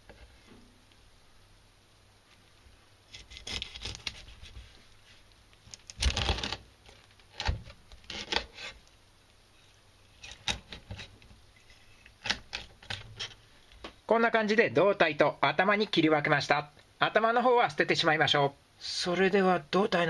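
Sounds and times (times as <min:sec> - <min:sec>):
knife crunching through fish backbone: 0:03.1 - 0:04.4.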